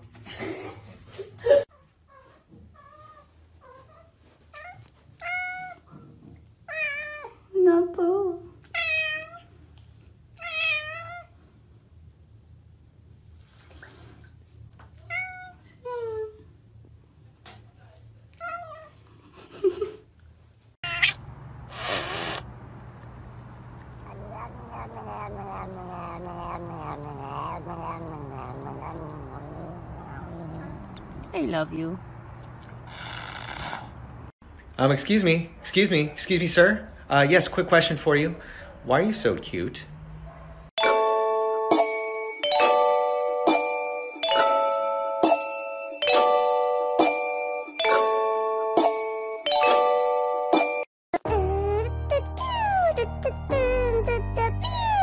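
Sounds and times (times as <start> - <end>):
cat meowing: 8.8 - 9.5, 10.4 - 11.3, 15.0 - 15.6, 20.8 - 21.3, 24.0 - 31.0
short hissing noise: 21.6 - 22.5.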